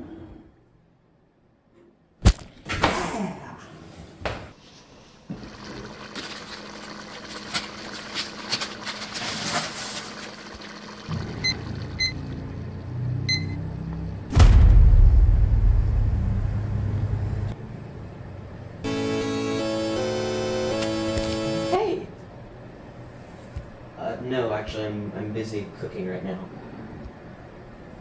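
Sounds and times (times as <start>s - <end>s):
water boiling hard in a pot: 5.3s - 13.0s
kitchen timer beeps: 11.4s - 12.2s, 13.3s - 13.6s
loud low rumble: 14.3s - 17.6s.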